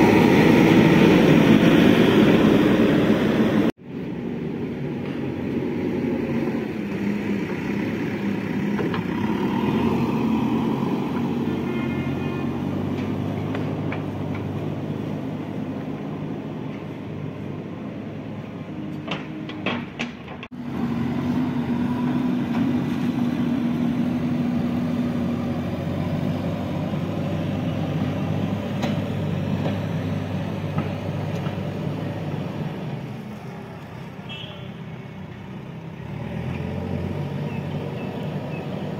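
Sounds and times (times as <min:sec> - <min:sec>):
backhoe diesel engine running: 0:06.7 - 0:33.7.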